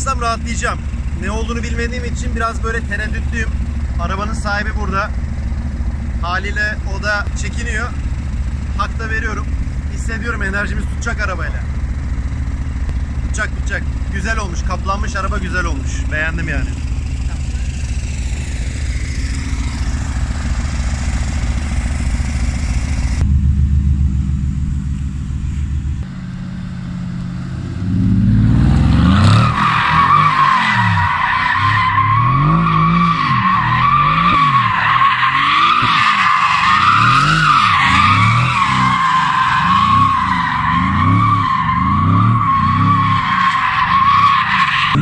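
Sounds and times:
car engine revving: 0:00.0 - 0:45.0
tyre squeal: 0:29.2 - 0:45.0.

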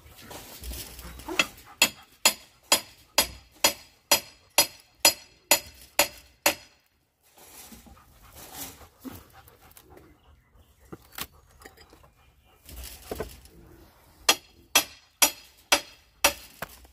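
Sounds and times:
hammer driving nails into wood: 0:01.8 - 0:06.8.

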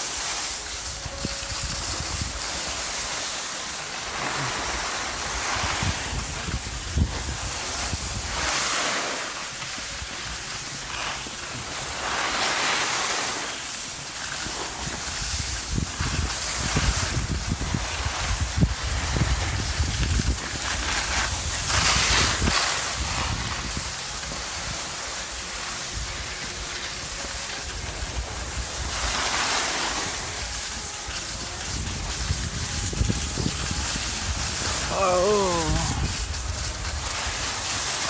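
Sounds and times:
skis scraping over snow: 0:00.0 - 0:38.0
wind buffeting microphone: 0:04.6 - 0:08.5, 0:14.9 - 0:24.8, 0:30.1 - 0:37.6.

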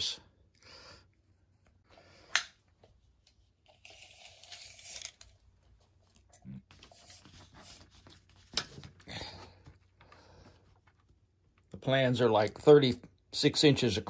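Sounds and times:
tape measure blade sliding: 0:03.7 - 0:05.3
paper rustling: 0:06.7 - 0:11.2.

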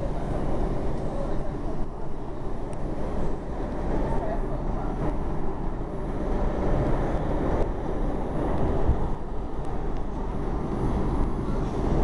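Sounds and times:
subway train wheels rumbling: 0:00.0 - 0:12.0.

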